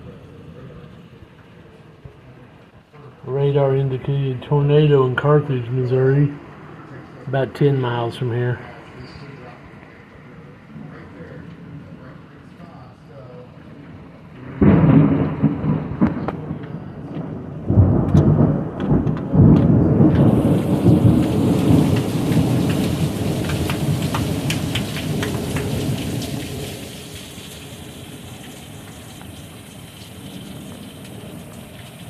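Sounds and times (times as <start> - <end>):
heavy pouring rain: 0.0 - 32.0
thunder rumbling: 14.3 - 32.0.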